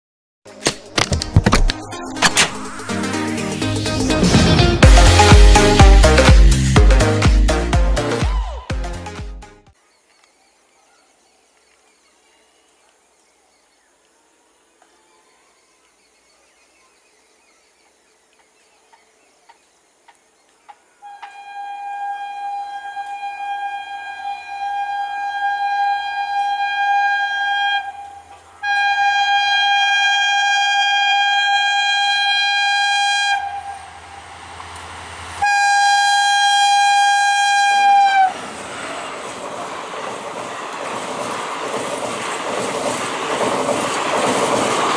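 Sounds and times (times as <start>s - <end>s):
rush of passing train: 2.0s - 6.8s, 22.9s - 44.9s
locomotive horn blasts: 21.0s - 34.7s, 35.3s - 38.4s.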